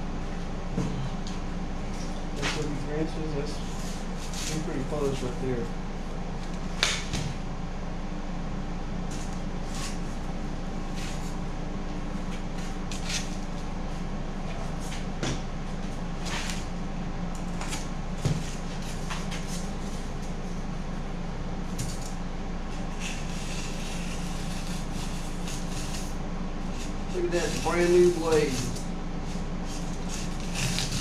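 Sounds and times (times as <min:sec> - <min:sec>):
steady low hum: 0:00.0 - 0:31.0
knife scratching foam board: 0:22.9 - 0:26.1, 0:26.7 - 0:31.0.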